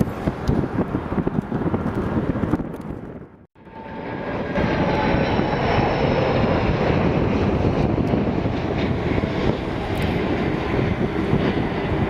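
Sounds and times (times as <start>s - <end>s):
jet engines roaring overhead: 0.0s - 12.0s
faint high engine whine: 3.6s - 12.0s.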